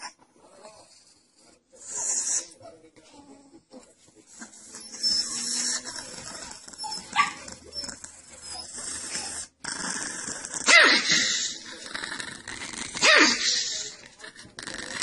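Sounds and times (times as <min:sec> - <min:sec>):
small dog growling and yelping: 0:04.4 - 0:11.6
high dog bark: 0:07.1 - 0:07.5, 0:10.7 - 0:11.1, 0:13.0 - 0:13.4.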